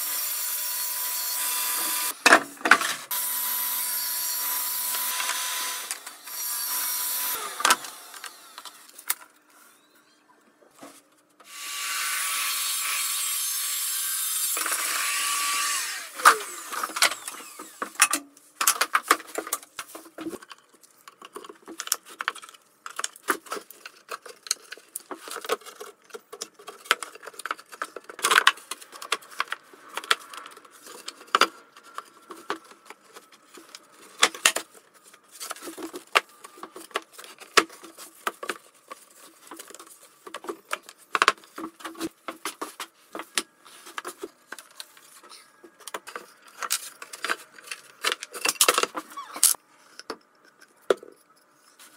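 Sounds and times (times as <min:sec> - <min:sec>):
woodworking power tool whining: 0:00.0 - 0:02.2, 0:03.0 - 0:09.0, 0:11.4 - 0:18.1.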